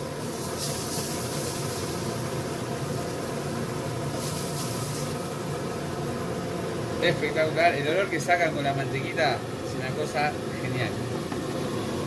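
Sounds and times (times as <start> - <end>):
fish sizzling in butter: 0.0 - 7.0
steady low hum: 0.0 - 12.0.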